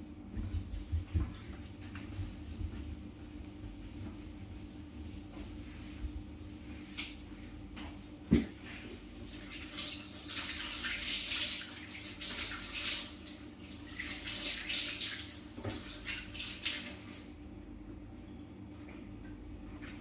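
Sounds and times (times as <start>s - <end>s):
dishes rinsed under water: 8.3s - 17.3s.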